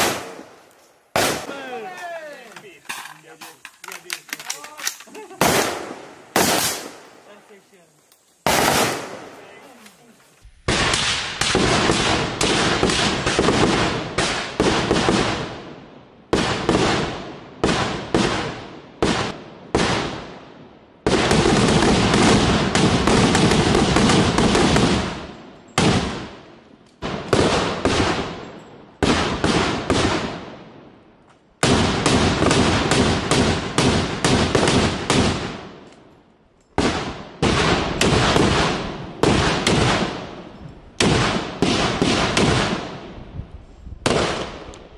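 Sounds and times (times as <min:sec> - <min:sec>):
rapid rifle fire: 0:00.0 - 0:00.5, 0:05.4 - 0:07.0, 0:08.4 - 0:09.4, 0:10.7 - 0:15.6, 0:16.4 - 0:20.3, 0:21.0 - 0:26.3, 0:27.0 - 0:28.4, 0:29.0 - 0:30.5, 0:31.6 - 0:35.8, 0:36.8 - 0:40.4, 0:41.0 - 0:43.0, 0:44.0 - 0:44.7.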